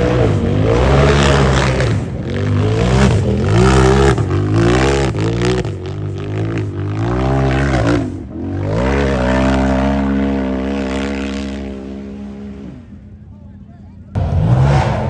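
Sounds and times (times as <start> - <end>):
utv engine revving hard: 0.0 - 13.0, 14.2 - 15.0.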